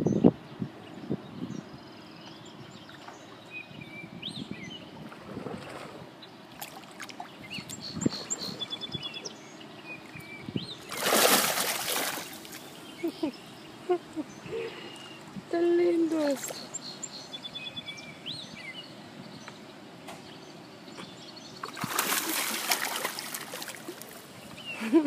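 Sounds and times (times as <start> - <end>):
fish splashing in shallow water: 5.0 - 8.8, 10.8 - 12.8, 21.6 - 24.3
faint bird chirps: 7.4 - 11.0.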